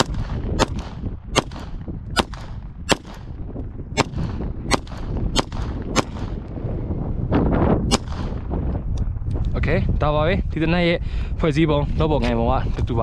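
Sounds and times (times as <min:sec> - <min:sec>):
pistol shots with echo: 0:00.0 - 0:03.4, 0:04.0 - 0:06.5, 0:07.9 - 0:08.4.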